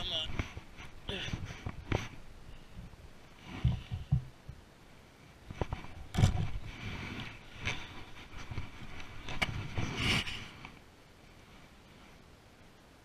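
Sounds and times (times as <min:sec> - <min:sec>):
clothing rustling against camera: 0:00.0 - 0:04.3, 0:05.2 - 0:10.8.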